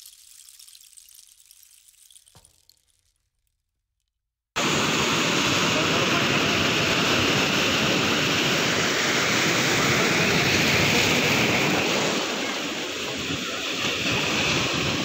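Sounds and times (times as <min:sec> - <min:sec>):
sea surf washing over rocks: 0:04.6 - 0:15.0.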